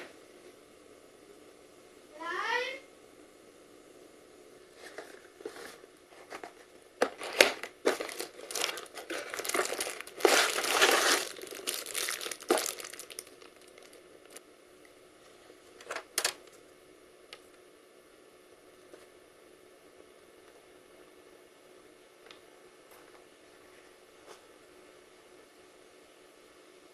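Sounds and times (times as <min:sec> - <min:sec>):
plastic wrapping crinkling: 0:04.7 - 0:14.4.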